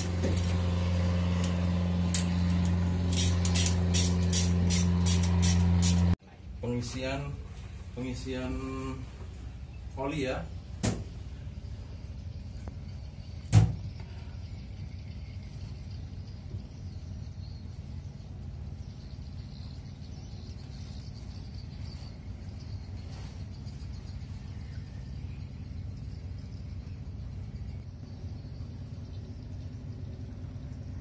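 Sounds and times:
pump motor humming: 0.0 - 6.2.

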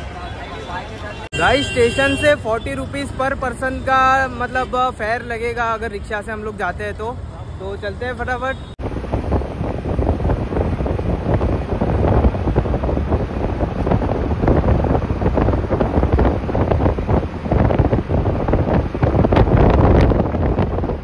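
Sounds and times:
rickshaw engine and road noise: 0.0 - 21.0
wind buffeting microphone: 8.8 - 21.0.

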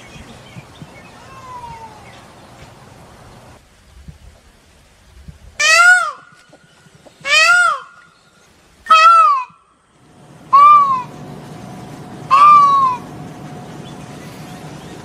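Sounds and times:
peacock calling: 0.0 - 2.5, 5.6 - 9.9, 10.5 - 11.5, 12.2 - 15.0
low background hum: 6.5 - 15.0.

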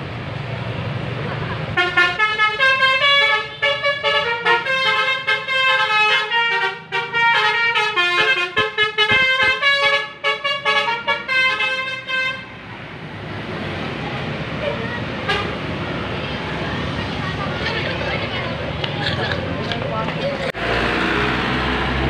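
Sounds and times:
musical air horn melody: 1.8 - 12.4.

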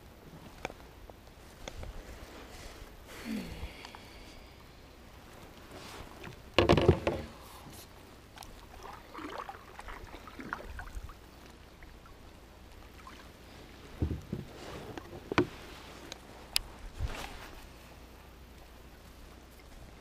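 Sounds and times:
fishing gear knocking in plastic kayak: 6.6 - 7.3.

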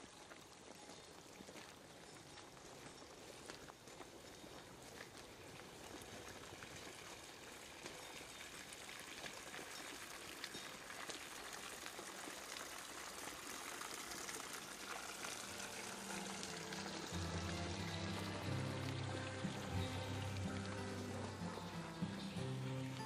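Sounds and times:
stream rushing and trickling: 0.0 - 23.0
low sustained musical tone: 14.6 - 23.0.

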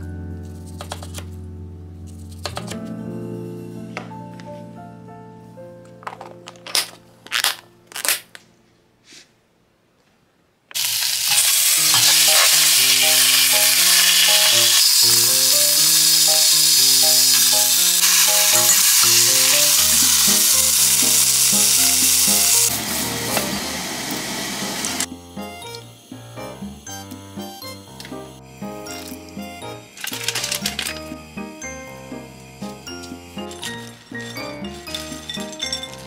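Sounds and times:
meat sizzling in a pot: 10.8 - 30.3.

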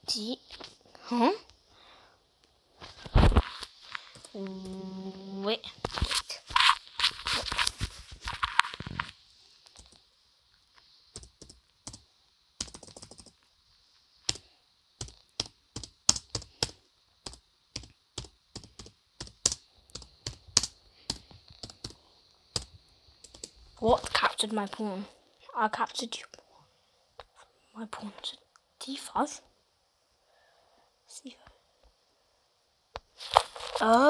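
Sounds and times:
rustling handling noise: 5.6 - 10.0, 33.1 - 34.0
laptop keyboard typing: 9.6 - 10.0, 11.1 - 13.5, 14.2 - 24.2.

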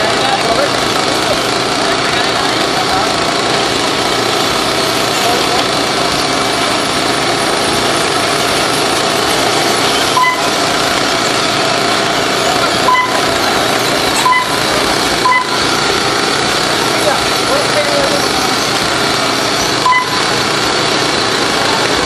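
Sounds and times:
small motors whining: 0.0 - 22.0
short electronic beeps: 10.0 - 10.7, 12.6 - 13.4, 14.1 - 15.8, 19.6 - 20.4.

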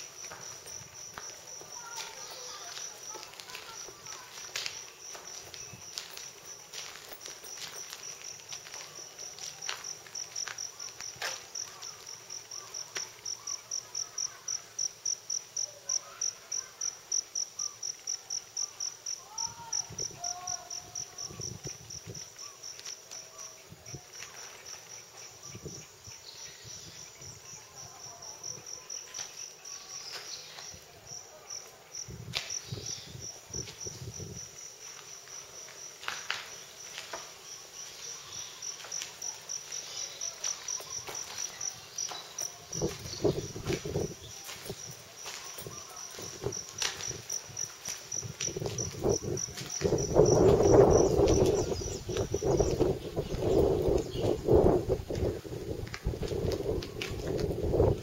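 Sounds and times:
footsteps on rubble: 0.0 - 13.3, 20.9 - 25.3, 32.3 - 32.9, 34.8 - 54.4, 55.0 - 58.0
insect pulsing chirp: 32.0 - 55.0.

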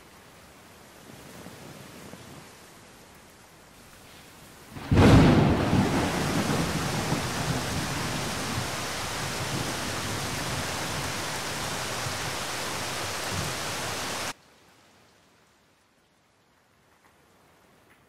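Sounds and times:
heavy rain: 0.0 - 16.8
low thunder rumble: 4.8 - 14.3.

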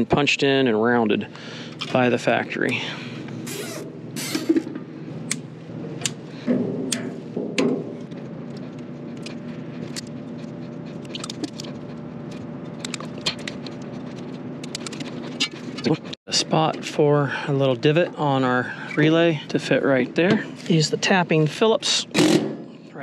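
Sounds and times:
steady machine hum: 0.0 - 23.0
wires and relay clicking: 14.6 - 15.0.

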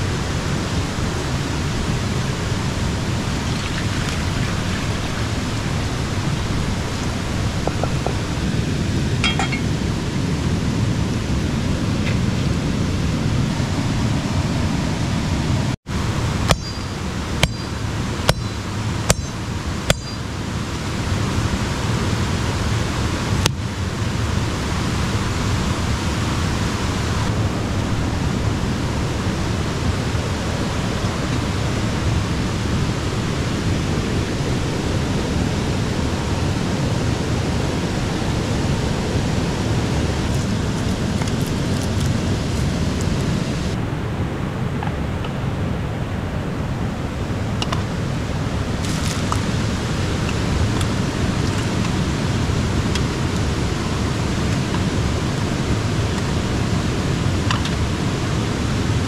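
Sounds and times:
river rushing over rocks: 0.0 - 59.0
sharp metallic clinks: 9.2 - 9.7, 16.5 - 20.3.

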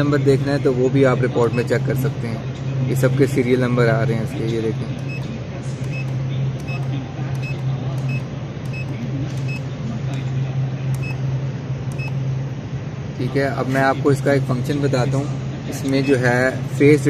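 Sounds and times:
steady low hum: 0.0 - 17.0
short high keypad beeps: 5.9 - 9.6, 11.0 - 11.2, 11.9 - 12.2.

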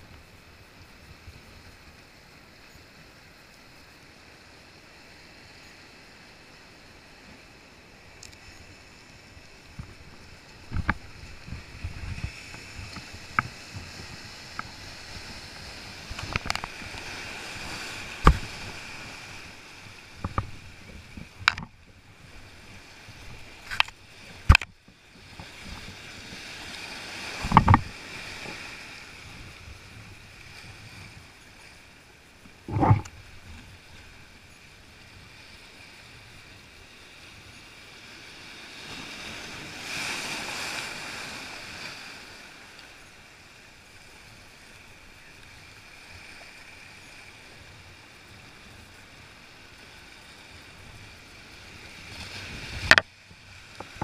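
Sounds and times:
waves breaking over rocks: 0.0 - 54.0
sharp knocks and thumps: 32.7 - 33.1.

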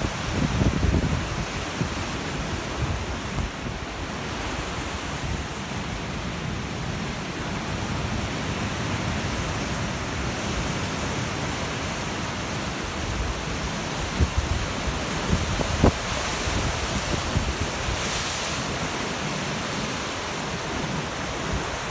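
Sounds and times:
wind on microphone: 0.0 - 5.7, 13.0 - 19.1
surf breaking on rocks: 7.8 - 21.9.

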